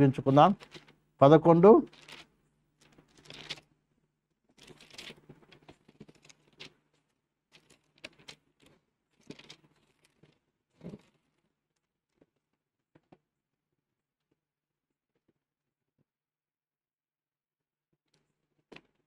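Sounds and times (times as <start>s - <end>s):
paper pages turning: 3.2s - 3.6s.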